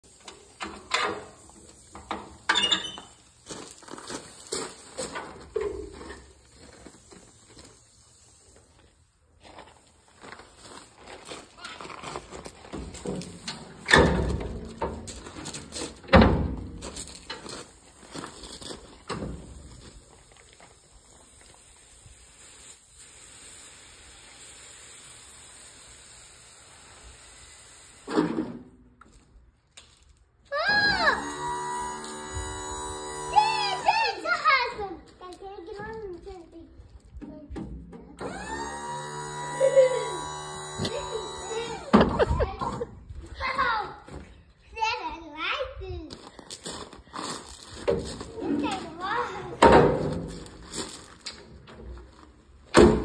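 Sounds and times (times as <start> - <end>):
hydraulic liftgate hissing: 38.2 - 42.0.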